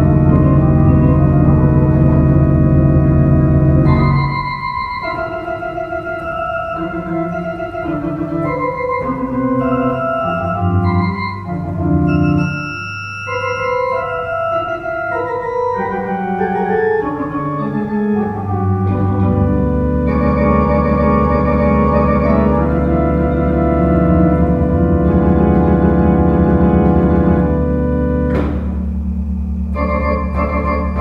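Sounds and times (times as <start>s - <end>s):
deep sustained organ bass: 0.0s - 12.7s, 13.8s - 31.0s
organ playing chords: 0.0s - 31.0s.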